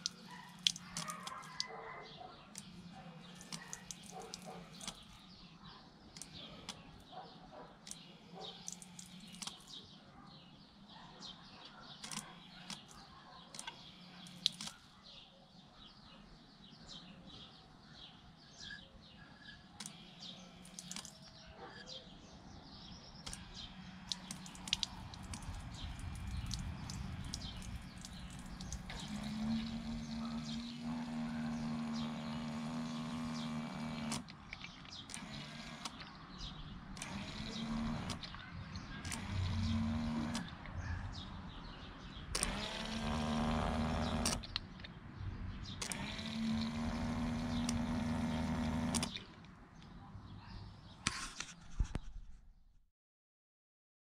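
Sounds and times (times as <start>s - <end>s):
water pump humming: 0.0s - 1.7s, 2.5s - 5.3s, 7.9s - 9.6s, 13.6s - 14.7s, 23.2s - 40.5s, 42.3s - 44.5s, 45.8s - 49.2s
birds chirping: 0.0s - 51.1s.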